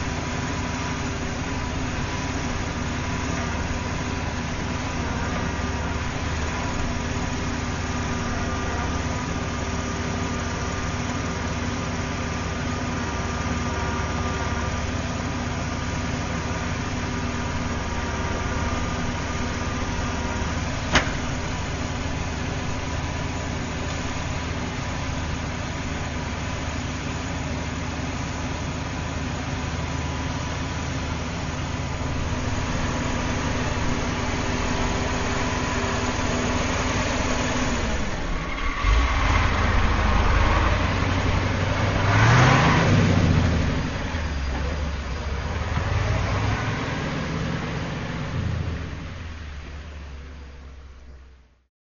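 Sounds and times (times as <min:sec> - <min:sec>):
truck engine idling: 0:00.0 - 0:51.6.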